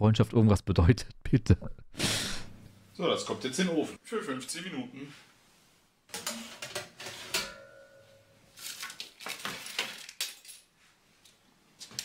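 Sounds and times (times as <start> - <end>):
baking tray clattering on oven rack: 6.2 - 7.8
short metallic ring: 7.4 - 8.4.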